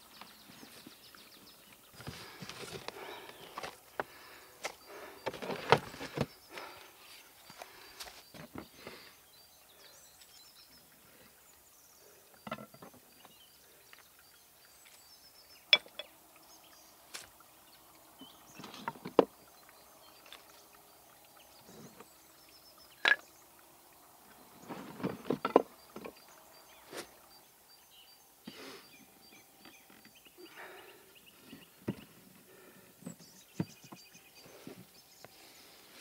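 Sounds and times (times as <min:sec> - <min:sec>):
wooden boards and tools knocking: 0:02.0 - 0:06.4, 0:12.4 - 0:13.0, 0:18.7 - 0:19.3, 0:24.9 - 0:26.2.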